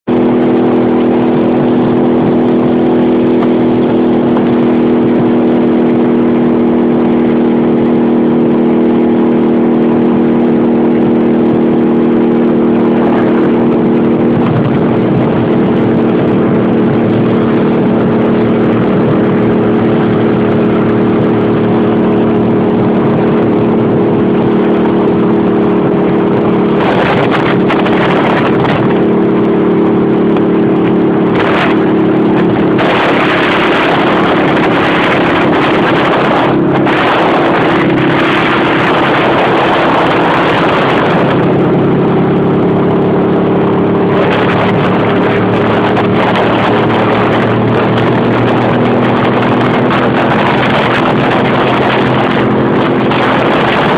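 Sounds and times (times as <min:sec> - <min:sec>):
motorcycle engine cruising: 0:00.0 - 0:53.9
wind rushing over microphone: 0:00.0 - 0:53.9.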